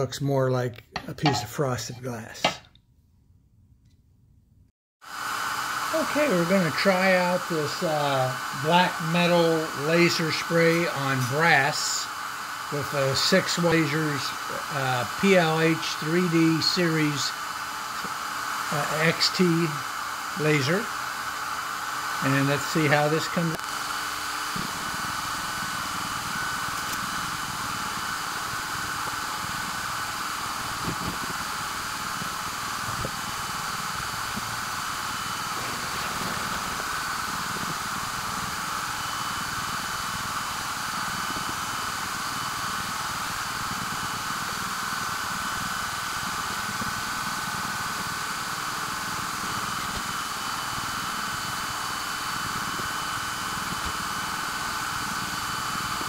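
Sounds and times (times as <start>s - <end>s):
faint motor whines: 5.1s - 56.0s
laser engraver hiss and hum: 5.1s - 56.0s
air blowing through nozzle: 5.2s - 45.2s.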